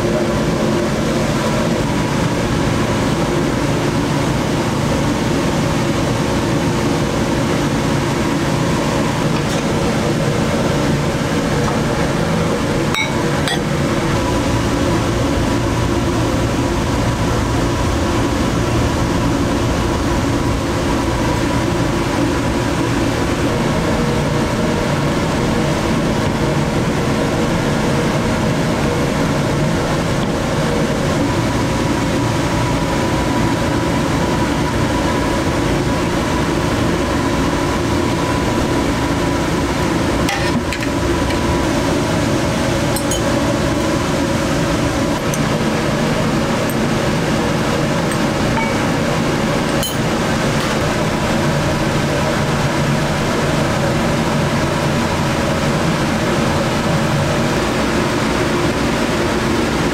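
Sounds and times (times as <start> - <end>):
kitchen machinery humming: 0.0 - 59.9
faint held tone: 13.0 - 13.7, 48.1 - 49.0, 49.8 - 50.1.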